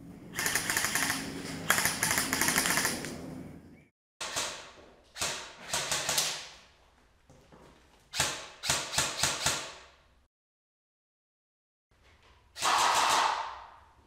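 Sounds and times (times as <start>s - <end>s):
airsoft rifle shots echoing: 12.6s - 13.8s.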